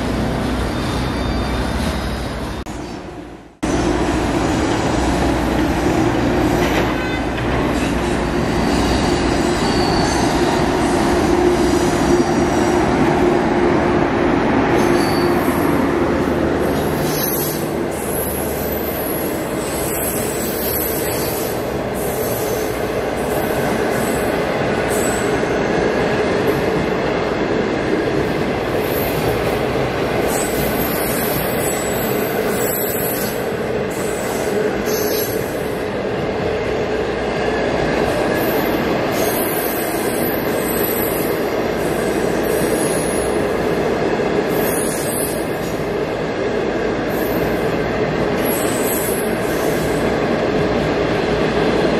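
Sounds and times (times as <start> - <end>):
train rolling on rails: 0.0 - 51.9
high wheel squeals: 0.6 - 2.6, 8.5 - 10.6, 14.7 - 15.7.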